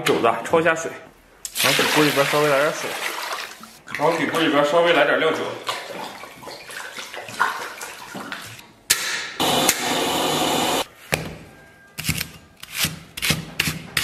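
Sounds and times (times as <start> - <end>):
gas burner rushing: 9.4 - 10.9.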